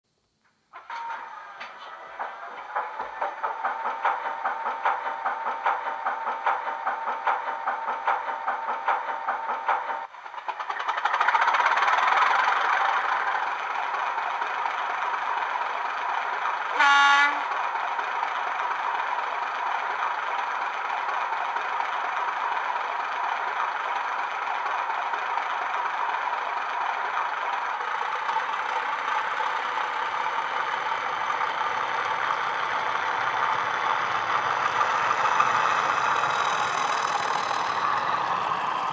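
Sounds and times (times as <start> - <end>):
diesel locomotive engine: 0.8 - 38.9.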